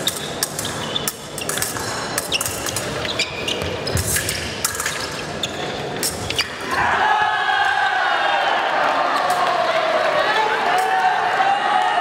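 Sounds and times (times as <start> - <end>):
fencing blades clicking and clashing: 0.0 - 6.6
crowd shouting: 6.6 - 12.0.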